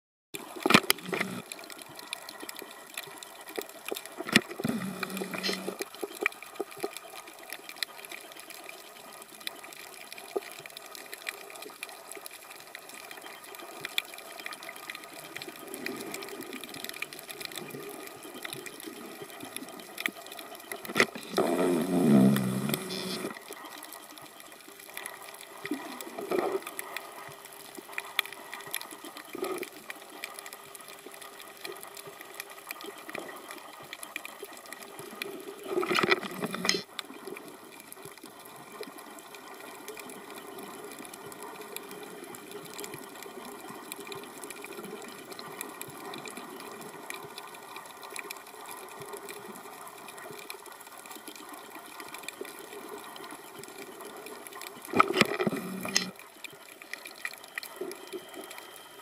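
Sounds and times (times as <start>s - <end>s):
steady underwater hiss: 0.4s - 59.0s
diver's exhaled bubbles: 4.5s - 5.8s, 21.2s - 23.4s.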